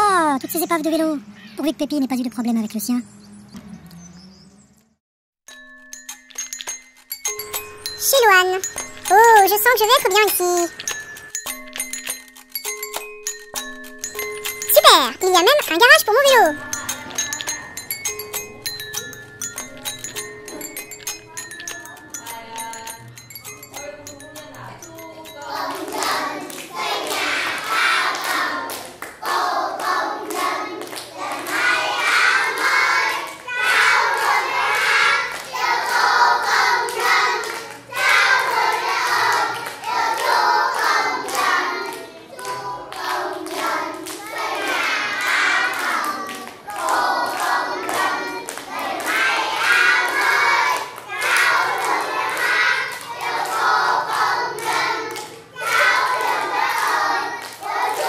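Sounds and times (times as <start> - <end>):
children clapping hands: 8.2 - 58.0
children singing: 23.7 - 58.0.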